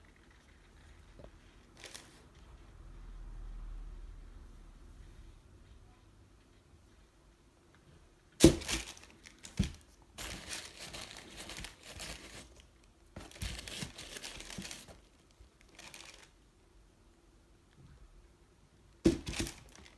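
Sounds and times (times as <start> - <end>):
tissue paper crinkling: 1.6 - 2.2, 8.4 - 16.4, 19.2 - 19.9.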